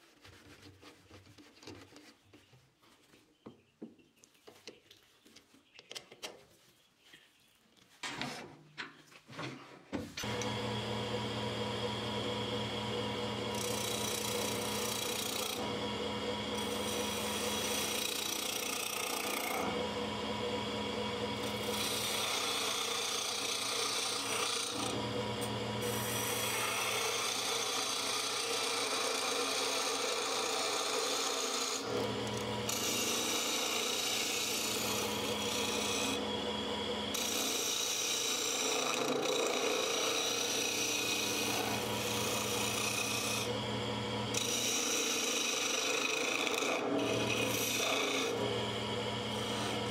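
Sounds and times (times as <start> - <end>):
lathe humming: 10.2 - 49.9
lathe tool scraping wood: 10.2 - 49.9.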